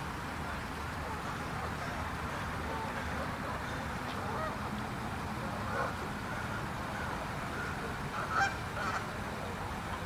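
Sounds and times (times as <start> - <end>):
low background noise: 0.0 - 10.0
geese honking: 7.0 - 9.1.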